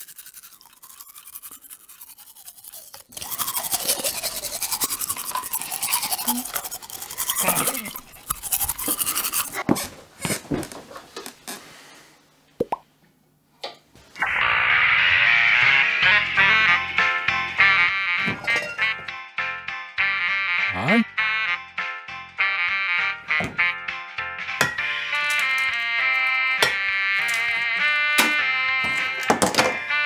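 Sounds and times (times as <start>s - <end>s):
electric toothbrush buzzing: 0.0s - 9.6s, 24.7s - 30.0s
music: 14.2s - 30.0s.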